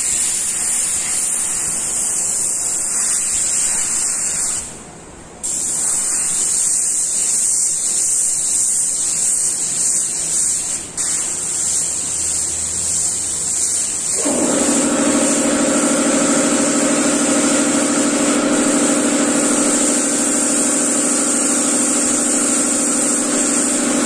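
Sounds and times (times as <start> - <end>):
airbrush hissing: 0.0 - 4.8, 5.4 - 24.0
air compressor motor humming: 11.5 - 24.0.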